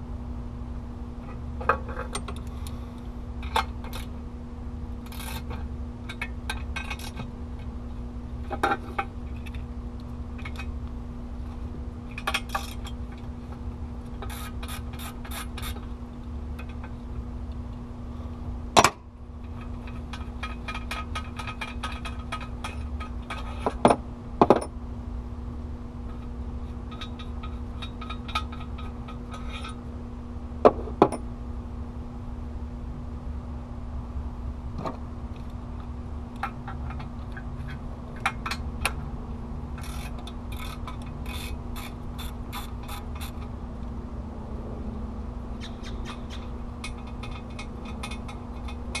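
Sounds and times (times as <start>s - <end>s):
steady hum: 0.0s - 49.0s.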